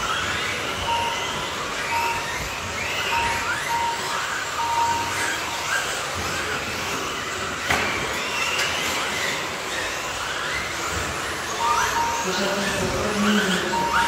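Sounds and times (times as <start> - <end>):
electric motors whining: 0.0 - 14.0
steady beep: 0.7 - 6.0, 11.5 - 14.0.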